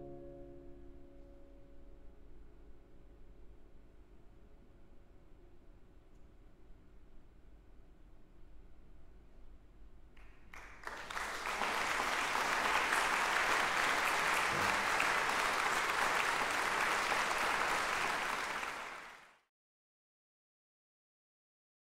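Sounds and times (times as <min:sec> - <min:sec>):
audience applause: 0:10.5 - 0:19.4.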